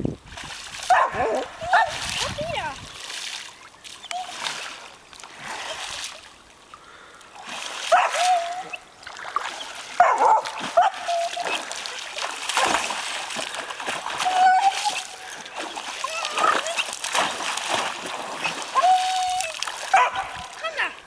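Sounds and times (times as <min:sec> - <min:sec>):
dog splashing in water: 0:00.3 - 0:06.3, 0:07.4 - 0:21.0.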